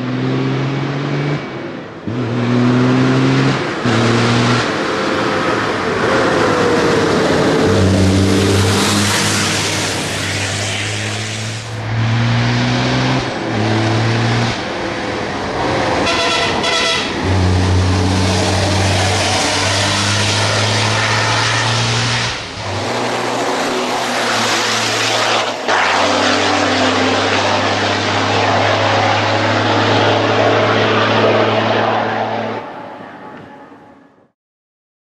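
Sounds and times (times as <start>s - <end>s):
truck diesel engine pulling hard: 0.0s - 33.2s.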